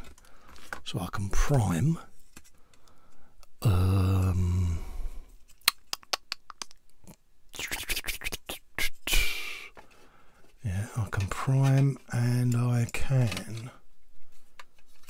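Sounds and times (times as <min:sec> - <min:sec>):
plastic parts clicking and knocking: 0:00.0 - 0:00.8, 0:09.8 - 0:15.0
man humming: 0:03.6 - 0:05.3.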